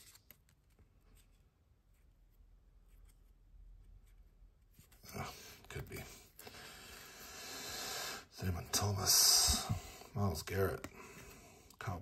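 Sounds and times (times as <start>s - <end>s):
trading cards rustling: 0.0s - 1.4s.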